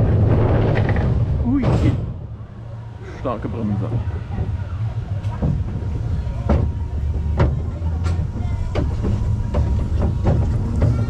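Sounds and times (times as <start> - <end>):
roller coaster wheels rumbling: 0.0 - 11.0
track clacks and rattles: 3.3 - 11.0.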